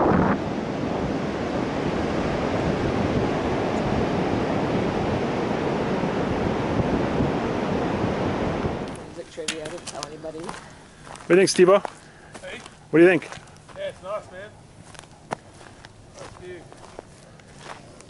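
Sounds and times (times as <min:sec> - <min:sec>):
ocean surf on a beach: 0:00.0 - 0:09.5
wind on the microphone: 0:00.0 - 0:10.0.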